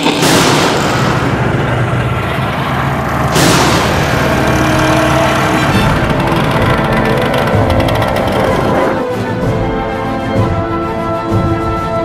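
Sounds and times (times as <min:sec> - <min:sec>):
steady low drone: 0:00.0 - 0:10.6
heavy cinematic boom hits: 0:00.2 - 0:06.1.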